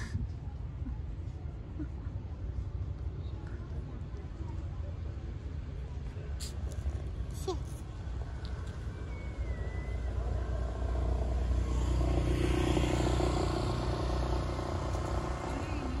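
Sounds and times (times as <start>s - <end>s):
low traffic hum: 0.0s - 16.0s
vehicle engine passing: 9.6s - 16.0s.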